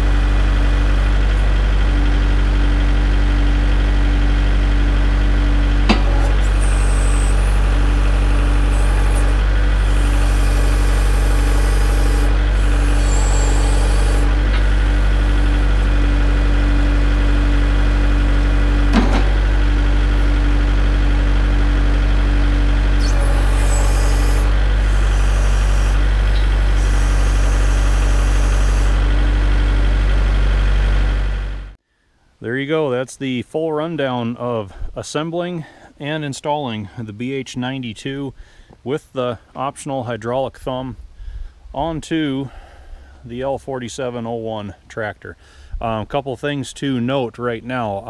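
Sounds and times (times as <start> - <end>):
tractor diesel engine running: 0.0 - 31.8, 40.5 - 48.0.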